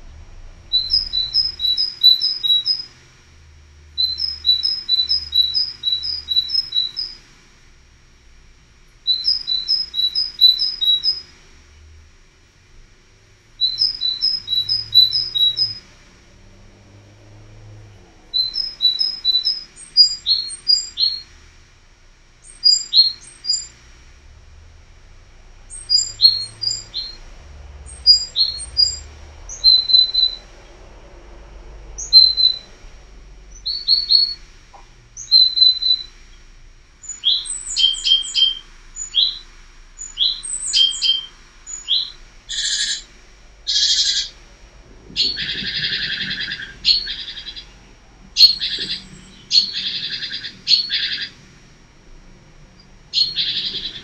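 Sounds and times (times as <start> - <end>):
songbirds chirping and singing: 0.8 - 2.9, 4.0 - 7.2, 9.1 - 11.3, 13.6 - 15.8, 18.2 - 21.3, 22.5 - 23.7, 25.7 - 30.8, 32.0 - 32.8, 33.5 - 34.4, 35.2 - 36.2, 37.0 - 43.1, 43.7 - 44.4, 45.1 - 51.4, 52.8 - 54.0.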